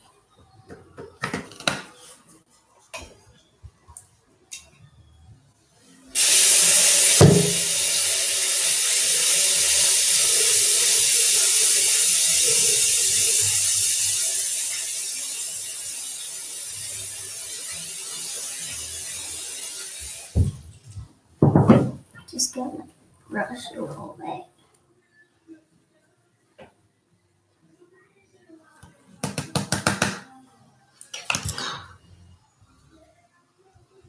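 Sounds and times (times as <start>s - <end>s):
aerosol spray can hissing: 6.2s - 20.4s.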